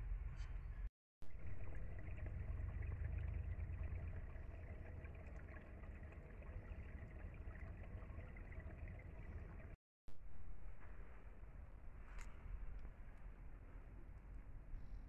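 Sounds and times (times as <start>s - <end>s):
deep low outdoor rumble: 0.0s - 9.8s.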